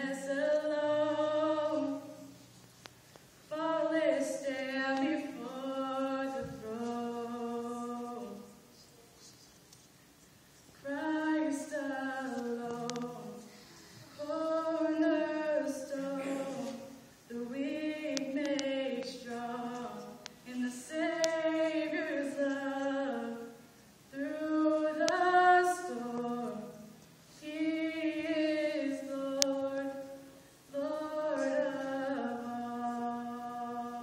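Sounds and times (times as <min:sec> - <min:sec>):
woman singing unaccompanied: 0:00.0 - 0:02.4, 0:03.5 - 0:08.7, 0:10.8 - 0:13.5, 0:14.1 - 0:34.0.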